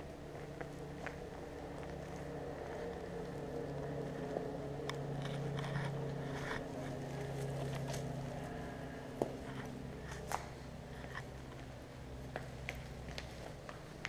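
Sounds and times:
low motor hum: 0.0 - 14.0
footsteps on concrete debris: 9.2 - 14.0.

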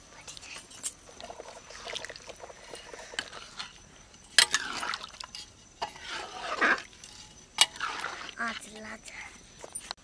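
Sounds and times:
spatula stirring curry: 1.2 - 8.8.

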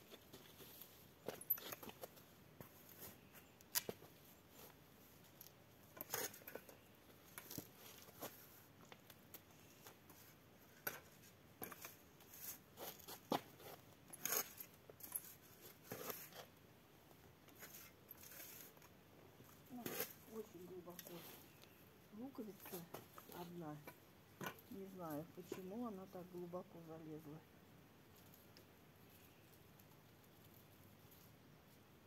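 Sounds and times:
garden fork crunching soil: 19.5 - 21.6.

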